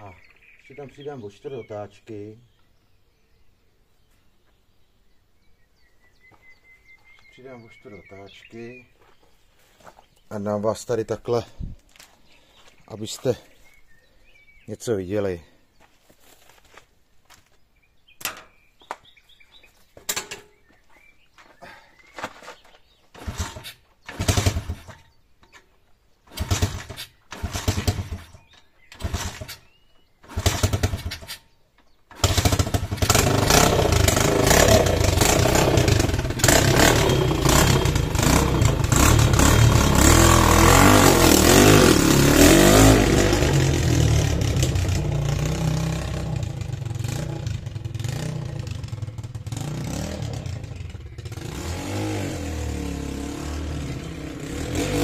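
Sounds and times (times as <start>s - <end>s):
pit bike engine starting and running: 22.5s - 31.5s, 32.1s - 55.0s.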